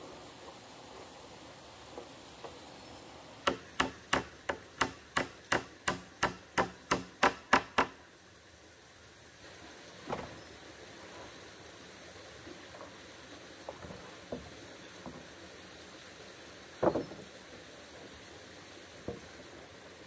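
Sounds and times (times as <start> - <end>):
hammer driving nails into wood: 3.4 - 8.0.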